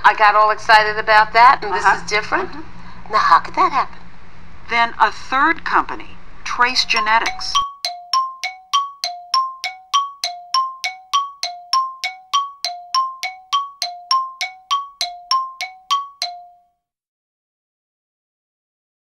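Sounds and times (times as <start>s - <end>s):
two-note chime ringing: 7.3s - 16.6s.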